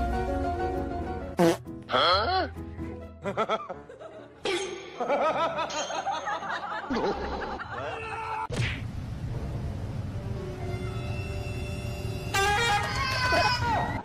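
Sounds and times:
high-pitched giggling laughter: 3.2s - 8.5s.

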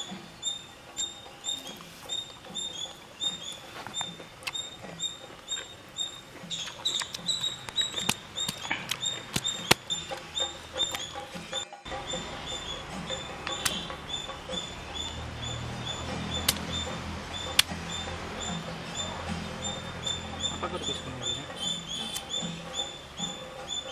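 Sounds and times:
small animal chirping: 0.0s - 23.9s
stone crushing fruit on slab: 6.5s - 11.2s, 13.4s - 14.0s.

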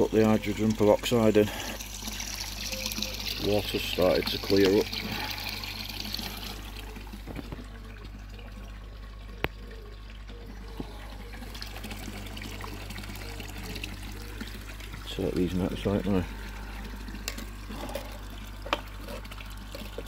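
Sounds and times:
constant low hum: 0.0s - 20.0s
pond water trickling and splashing: 0.0s - 20.0s.

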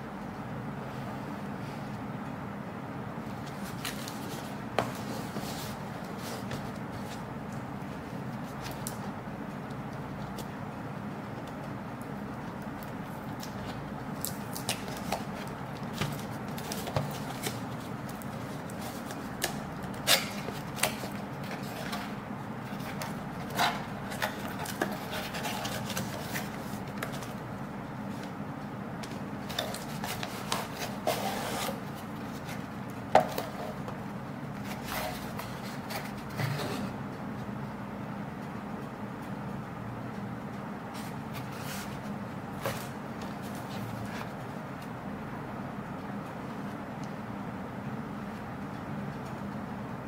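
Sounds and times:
faint steady hum: 0.0s - 50.0s
cardboard rubbing and scraping: 29.5s - 32.7s.

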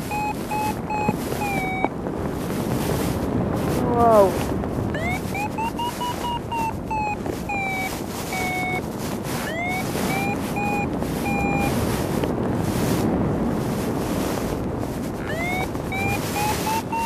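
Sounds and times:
variometer short beeps: 0.0s - 1.9s, 4.9s - 11.9s, 15.2s - 17.0s
wind rushing over microphone: 0.0s - 17.0s.

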